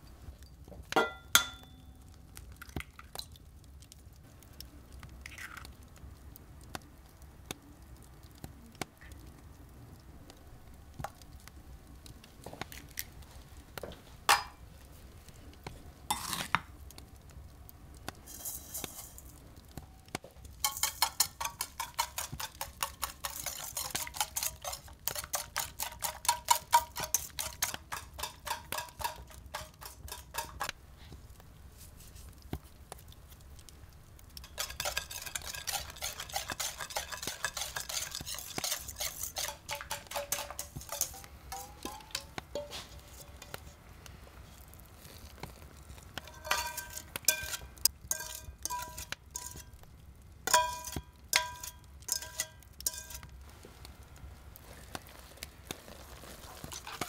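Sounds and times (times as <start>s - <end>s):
utensil clinking in bowl: 20.6s - 30.7s, 34.4s - 43.6s, 46.2s - 49.7s, 50.5s - 53.3s.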